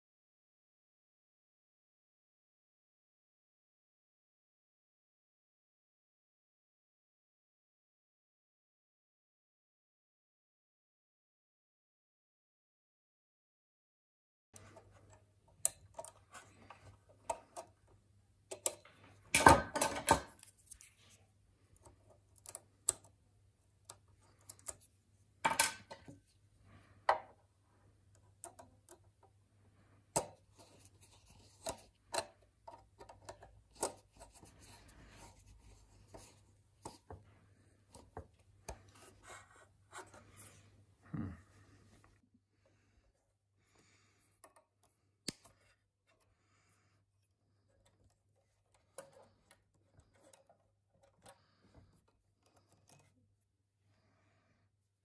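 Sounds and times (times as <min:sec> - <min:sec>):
screwdriver clicks and scrapes: 0:47.6 - 0:53.2.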